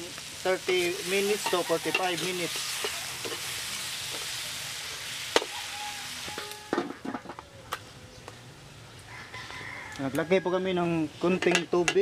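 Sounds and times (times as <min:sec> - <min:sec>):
meat sizzling in a wok: 0:00.0 - 0:07.0
metal spatula scraping wok: 0:00.6 - 0:07.3
spatula clinking on wok: 0:00.7 - 0:03.4.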